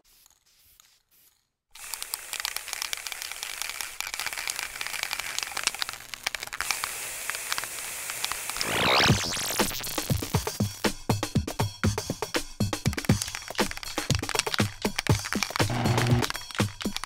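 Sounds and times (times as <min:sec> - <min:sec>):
hiss: 0:00.0 - 0:06.0, 0:06.6 - 0:11.0
dense crackling noise: 0:13.2 - 0:17.0.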